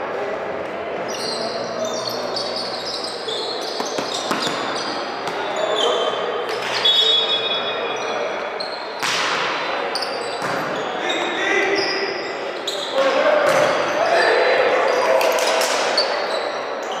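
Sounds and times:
crowd chatter: 0.0s - 17.0s
shoes squeaking on court: 1.0s - 9.0s, 9.9s - 13.9s
volleyball hits: 3.8s - 5.6s, 9.0s - 10.8s.

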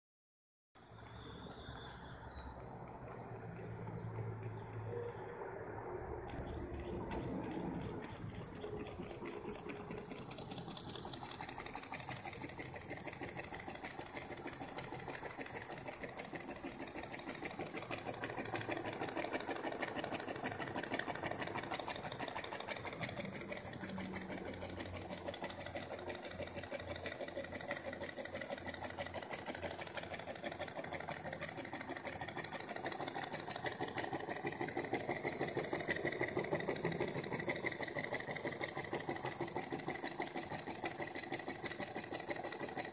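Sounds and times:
steam engine clattering: 5.6s - 42.9s.

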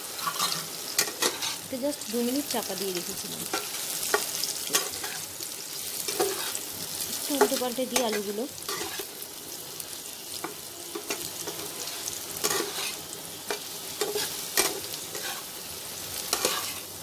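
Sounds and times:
potatoes sizzling in oil: 0.0s - 17.0s
spatula scraping pan: 0.2s - 1.6s, 6.0s - 6.6s, 7.4s - 9.2s, 10.4s - 15.5s, 16.2s - 16.9s.

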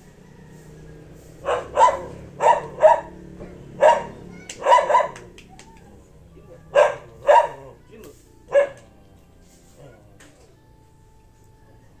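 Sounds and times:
dog barking: 1.4s - 5.3s, 6.7s - 7.8s, 8.5s - 8.9s.

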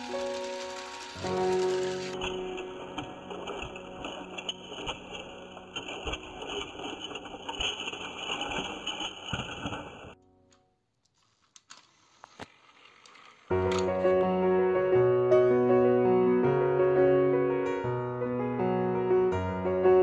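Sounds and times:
toy train motors whirring: 0.0s - 2.2s, 11.1s - 13.9s
piano music: 0.0s - 9.1s, 13.5s - 20.0s
gear rattle and clicking: 0.1s - 10.2s.

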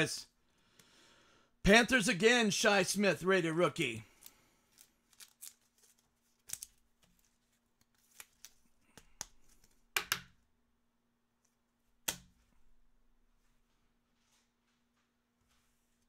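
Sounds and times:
cards clicking and snapping: 4.2s - 10.4s.

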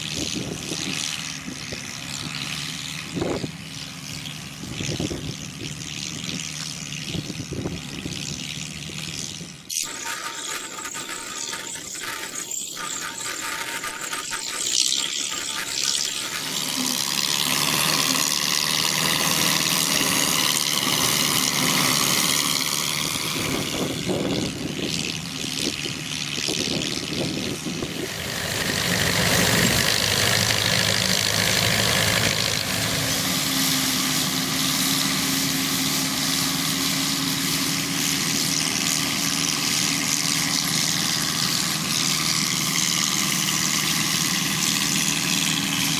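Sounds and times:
combine harvester machinery din: 0.0s - 45.9s.

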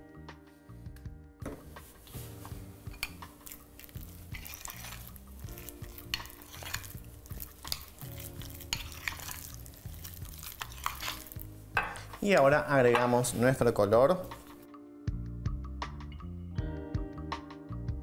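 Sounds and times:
spoon stirring and scraping paste: 2.0s - 12.2s.

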